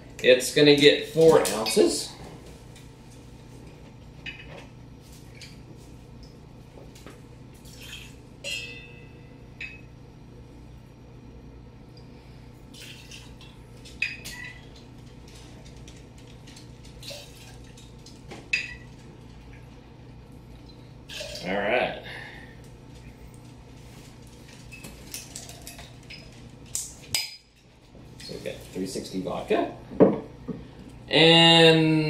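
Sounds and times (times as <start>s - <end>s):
glass and metal clinks: 8.4s - 9.8s
liquid trickling: 16.9s - 19.9s, 20.5s - 21.5s.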